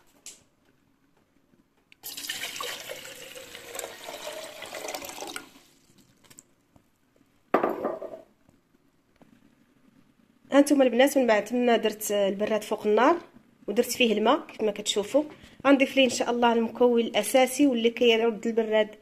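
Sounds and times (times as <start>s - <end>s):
water pouring into a metal teapot: 2.0s - 5.9s.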